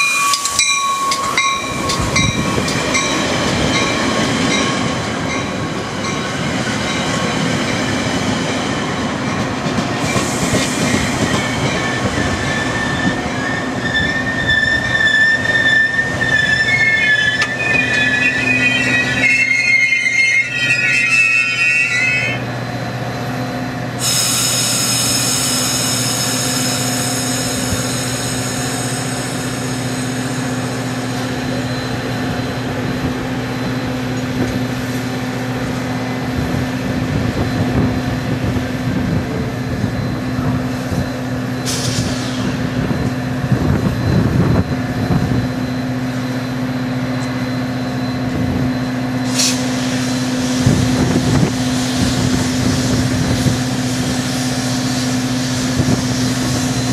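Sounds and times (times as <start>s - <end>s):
train engine humming: 0.0s - 56.9s
brake air hissing: 41.7s - 42.6s, 49.3s - 50.9s.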